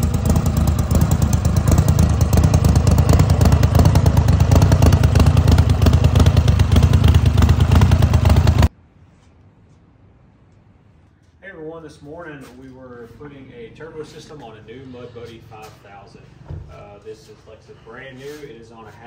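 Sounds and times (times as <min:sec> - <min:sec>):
mud motor running loud: 0:00.0 - 0:08.7.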